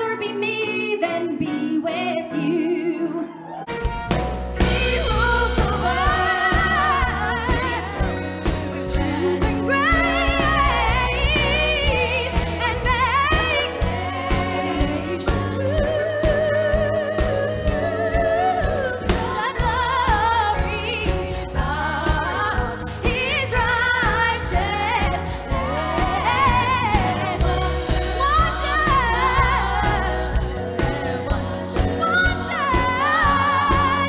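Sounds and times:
woman singing with vibrato: 0.0 - 3.6, 4.6 - 34.0
live band playing: 3.2 - 34.0
drum kit beat: 3.8 - 34.0.

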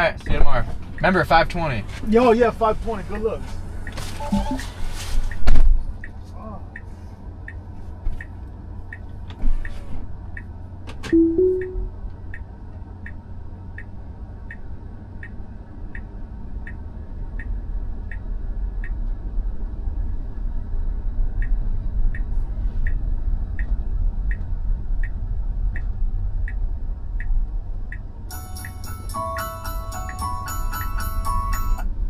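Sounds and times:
turn signal ticking: 0.0 - 1.5, 3.2 - 9.4, 10.2 - 19.3, 20.9 - 28.8
road and tyre noise: 0.0 - 32.0.

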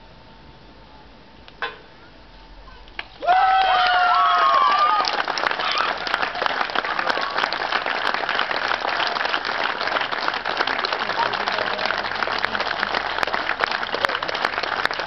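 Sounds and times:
high-pitched shouts of joy: 3.2 - 7.6
crowd applauding: 3.2 - 15.0.

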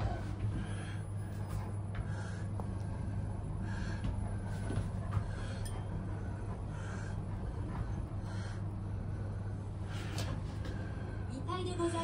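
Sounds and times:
elevator hum: 0.0 - 12.0
dog panting: 3.1 - 11.1.

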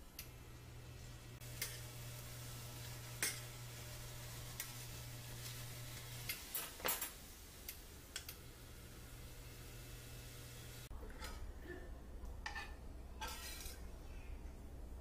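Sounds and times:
faint sizzle of fish: 0.0 - 10.9
low steady hum: 0.0 - 15.0.

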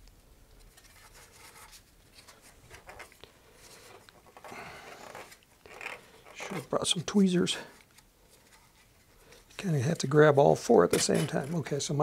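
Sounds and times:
faint scraping and rubbing: 0.6 - 12.0.

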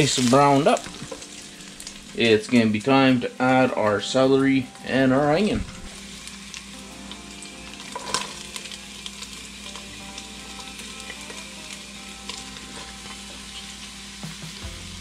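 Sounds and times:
chicken sizzling in hot oil: 0.0 - 15.0.

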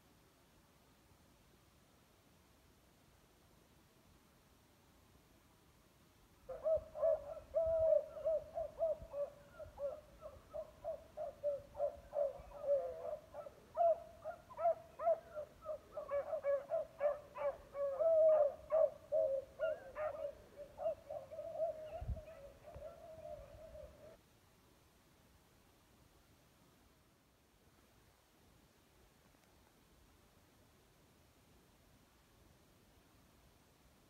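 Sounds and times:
pack of hounds baying: 9.2 - 24.0.

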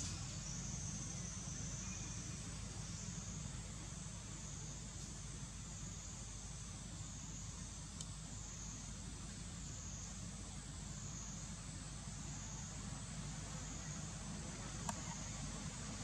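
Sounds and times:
insect chorus buzzing: 0.0 - 16.0
faint click: 8.0 - 8.2, 14.8 - 15.2.

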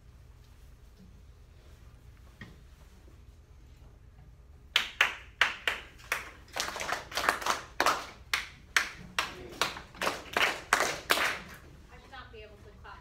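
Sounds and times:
hand claps: 4.7 - 11.7.

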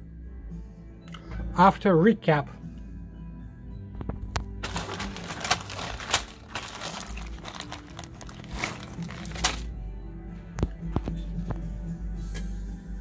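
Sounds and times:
plastic bag crinkling: 4.6 - 9.7.

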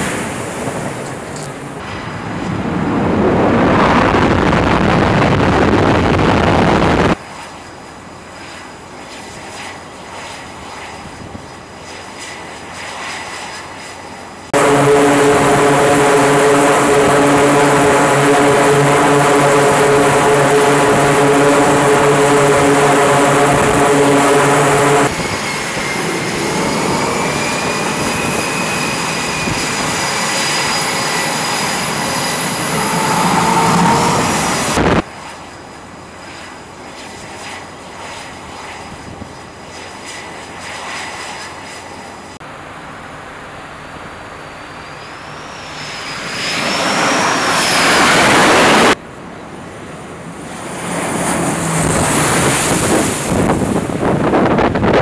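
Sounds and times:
wind noise: 0.0 - 7.2, 10.8 - 11.6, 14.6 - 35.1, 50.6 - 55.0
close jet engine drone: 0.0 - 55.0
distant jet engines: 0.0 - 55.0
high-pitched turbine whine: 0.0 - 55.0.

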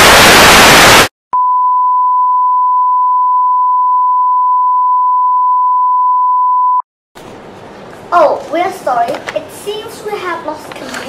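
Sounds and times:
steady test tone beep: 1.4 - 6.8.

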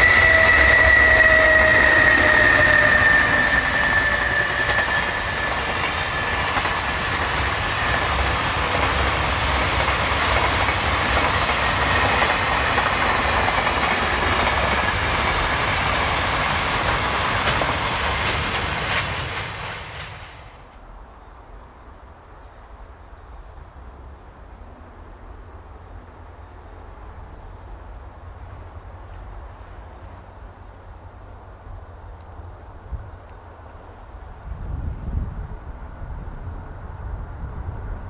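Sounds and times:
train wheels rumbling and clattering: 0.0 - 20.8.

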